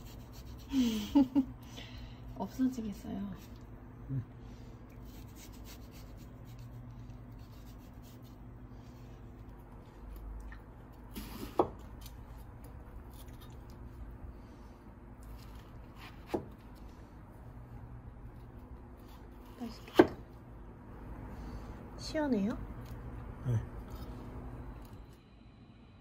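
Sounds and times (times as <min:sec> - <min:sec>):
low steady hum: 0:00.0 - 0:26.0
knife scraping and slicing: 0:13.0 - 0:13.8, 0:15.2 - 0:16.6.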